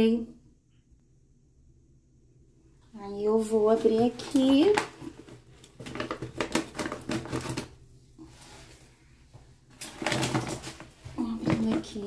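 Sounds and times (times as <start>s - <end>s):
plastic bag crinkling: 3.8s - 7.8s, 9.8s - 12.0s.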